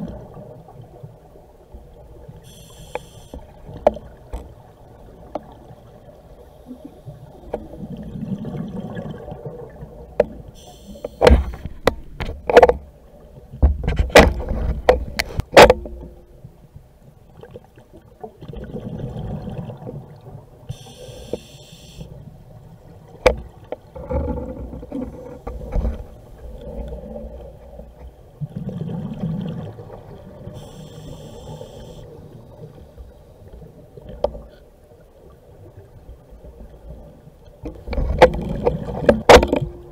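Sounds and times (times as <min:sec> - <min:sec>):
regulator hiss on inhale: 0:02.4 - 0:03.5, 0:10.6 - 0:11.6, 0:20.7 - 0:22.2, 0:30.5 - 0:32.1
exhaled bubbles rushing: 0:07.8 - 0:09.9, 0:28.4 - 0:30.4.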